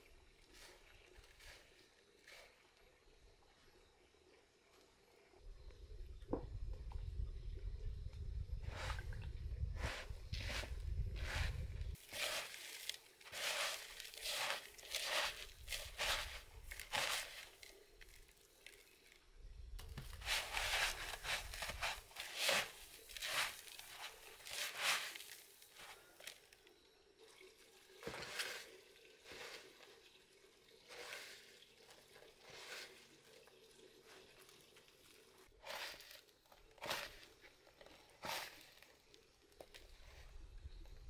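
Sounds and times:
breadcrumbs crunching and rustling: 0:09.8 - 0:18.9, 0:19.8 - 0:26.3, 0:35.4 - 0:39.8.

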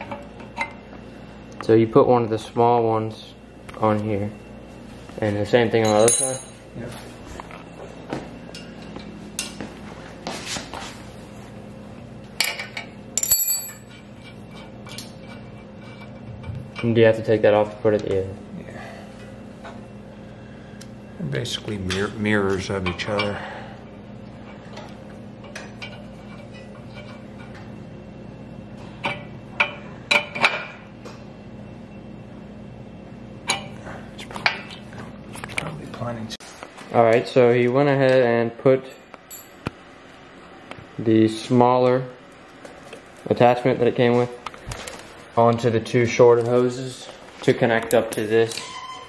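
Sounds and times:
faint steady hum: 0:00.0 - 0:49.0
wrench clinking on metal fitting: 0:05.8 - 0:06.6, 0:13.2 - 0:13.9
metal fittings clinking on steel: 0:13.2 - 0:13.9.

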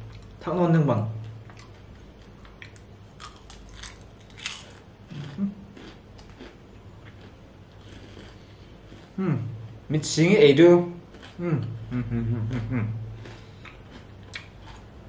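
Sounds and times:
chewing crispy fried chicken: 0:01.2 - 0:09.6, 0:10.9 - 0:15.0
person humming: 0:09.2 - 0:09.6, 0:11.4 - 0:13.2.

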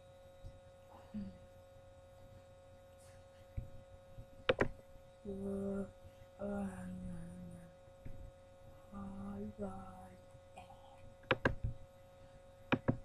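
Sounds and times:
steady electrical hum: 0:00.0 - 0:13.0
boy making wordless sounds: 0:05.3 - 0:07.7, 0:09.0 - 0:10.9.

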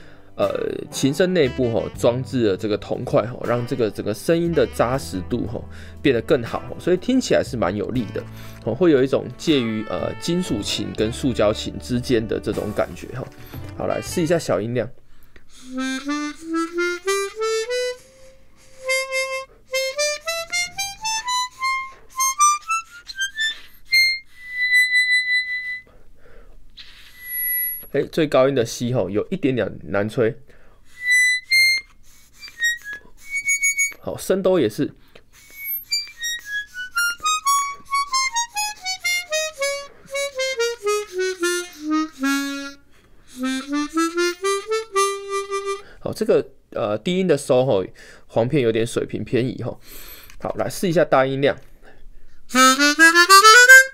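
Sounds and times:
chromatic harmonica notes: 0:00.0 - 0:14.6, 0:15.4 - 0:25.9, 0:30.9 - 0:34.1, 0:35.3 - 0:46.0, 0:52.5 - 0:53.9.

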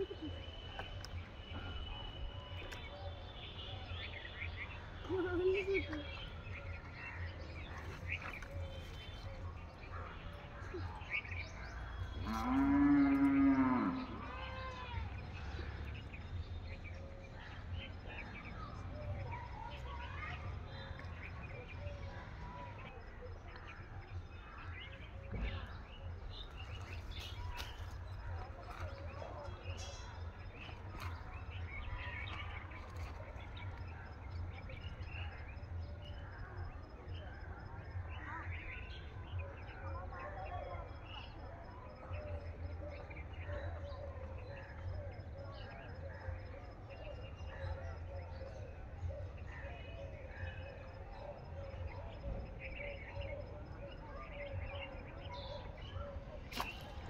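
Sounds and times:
small birds chirping: 0:00.0 - 0:57.0
cow mooing: 0:12.2 - 0:14.2.

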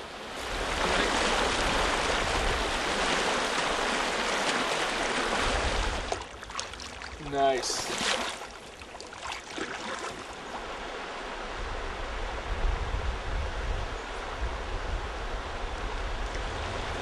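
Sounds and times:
rocky river rushing: 0:00.0 - 0:11.3.

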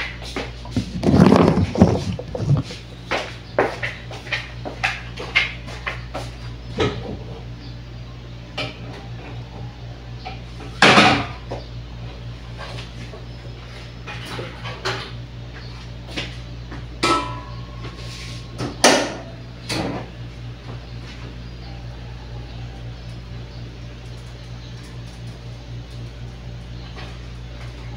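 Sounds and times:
steady low hum: 0:00.0 - 0:27.9
pots and pans clicking and knocking: 0:17.0 - 0:17.5
pots clattering: 0:17.0 - 0:17.6.

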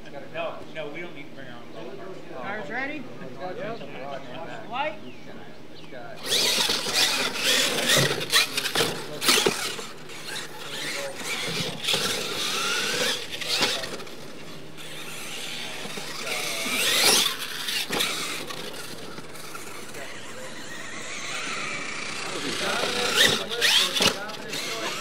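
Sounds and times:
rc truck motors whining: 0:06.1 - 0:25.0.

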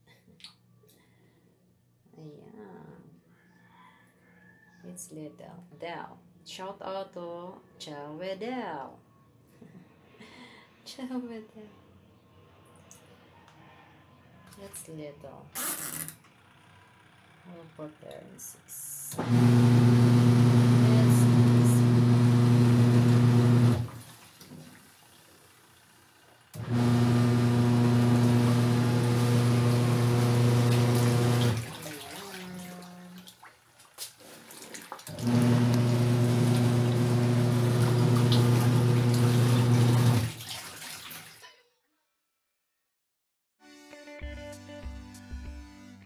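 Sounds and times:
washing machine motor humming: 0:19.1 - 0:25.1, 0:26.5 - 0:32.9, 0:35.0 - 0:40.4
clothes sloshing in water: 0:30.6 - 0:35.6, 0:37.7 - 0:41.4.

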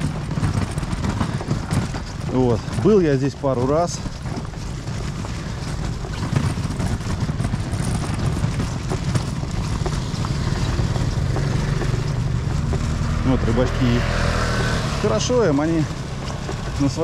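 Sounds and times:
hand cart wheels rattling on pavement: 0:00.0 - 0:17.0
motor scooter engine: 0:00.0 - 0:17.0.

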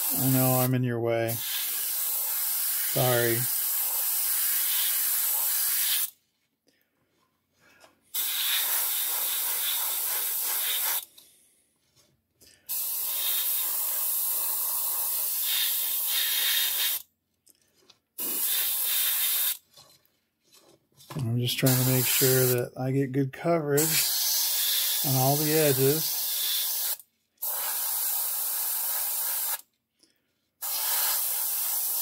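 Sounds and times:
airbrush spraying hiss: 0:00.0 - 0:00.7, 0:01.3 - 0:06.1, 0:08.2 - 0:11.1, 0:12.7 - 0:17.0, 0:18.2 - 0:19.6, 0:21.6 - 0:22.6, 0:23.8 - 0:29.6, 0:30.6 - 0:32.0.

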